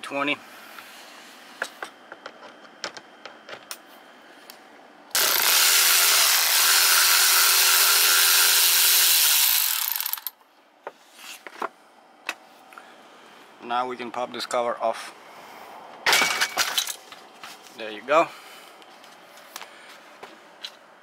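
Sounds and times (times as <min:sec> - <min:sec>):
electric screwdriver running: 0:05.2 - 0:10.3.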